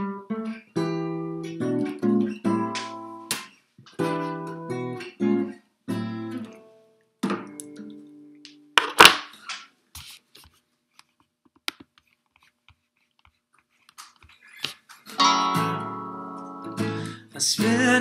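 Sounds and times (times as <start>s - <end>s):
guitar handling clicks and taps: 1.4s - 5.5s, 7.2s - 9.7s
acoustic guitar chord strummed: 15.2s - 18.0s.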